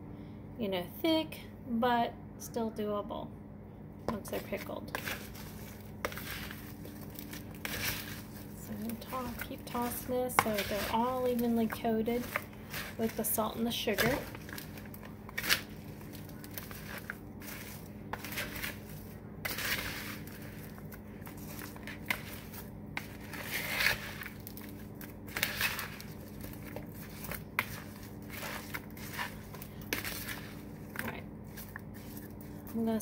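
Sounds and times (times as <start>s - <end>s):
wet rustling and scraping: 4.1s - 33.0s
scraper clicking on bowl: 8.8s - 24.7s.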